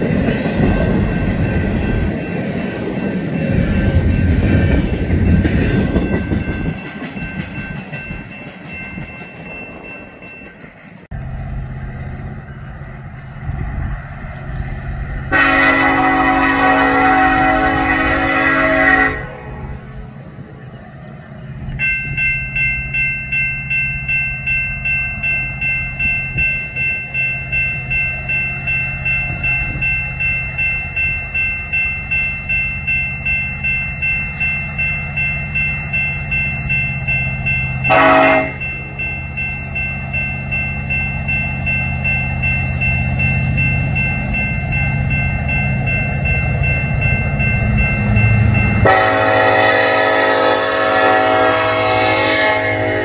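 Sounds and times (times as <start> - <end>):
crossing bell ringing: 0.0 - 11.3, 15.2 - 53.0
diesel locomotives rumbling: 0.0 - 53.0
locomotive horn: 15.3 - 19.8, 37.9 - 38.6, 48.8 - 53.0.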